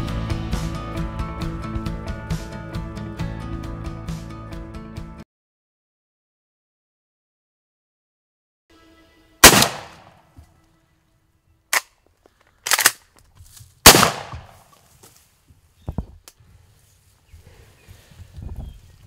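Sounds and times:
shotgun blasts with echo: 9.4 - 10.1, 13.8 - 14.6.

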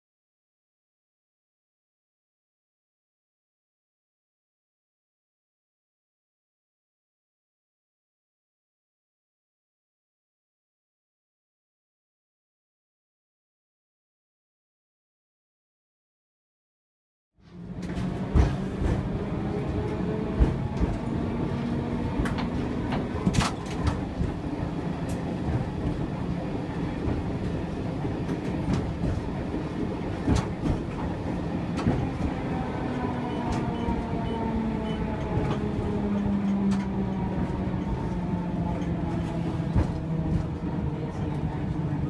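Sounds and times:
tram running rumble: 17.4 - 42.0.

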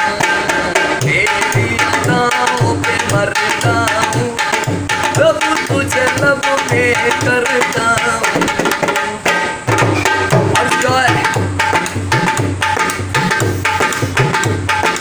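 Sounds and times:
hand drum bass strokes: 0.0 - 15.0
hand drum treble slaps: 0.0 - 15.0.

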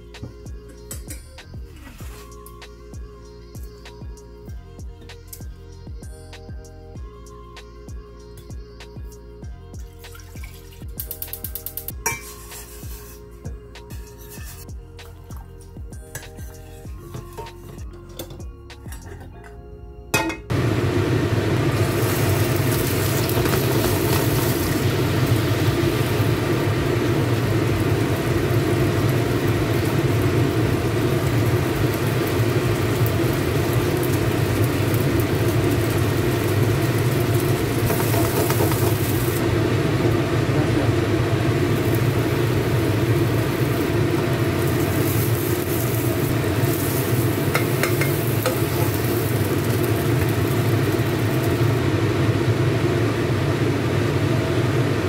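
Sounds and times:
food sizzling in frying pan: 10.1 - 13.2, 20.5 - 55.0.

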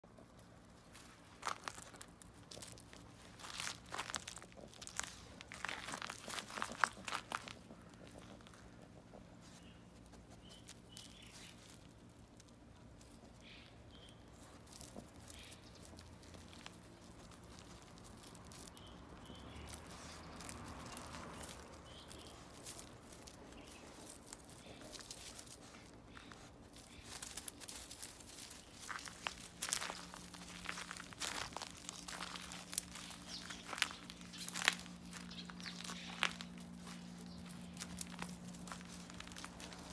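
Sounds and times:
dog crunching gravel and leaves: 0.0 - 39.9.

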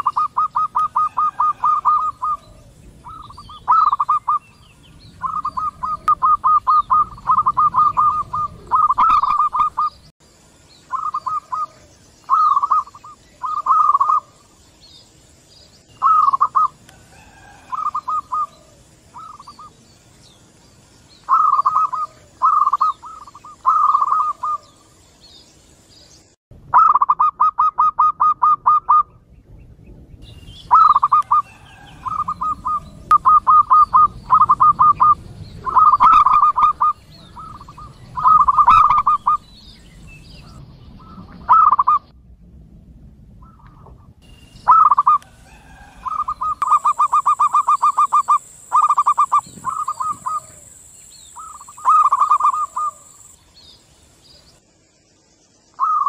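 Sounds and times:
doves cooing: 0.0 - 10.0, 10.9 - 14.6, 16.0 - 19.8, 21.2 - 24.9, 30.7 - 39.5, 40.4 - 42.1, 44.7 - 53.3, 55.8 - 56.0.

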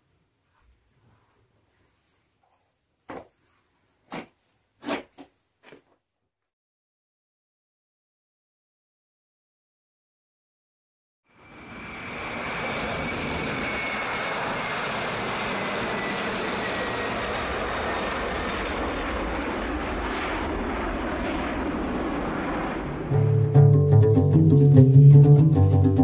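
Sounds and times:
jet engines at takeoff power: 11.3 - 23.1.

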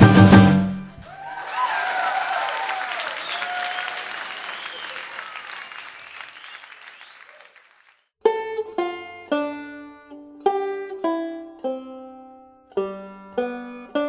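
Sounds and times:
applause: 1.0 - 8.1
plucked string melody: 8.2 - 14.0.

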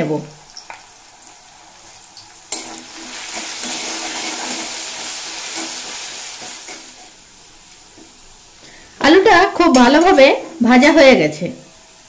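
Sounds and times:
potato sizzling in oil: 0.0 - 12.0
metal spatula stirring: 2.5 - 7.2.

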